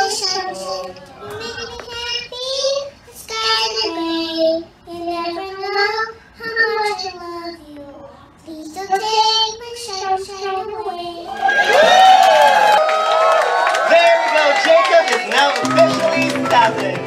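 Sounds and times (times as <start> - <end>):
girl singing into a microphone: 0.0 - 11.3.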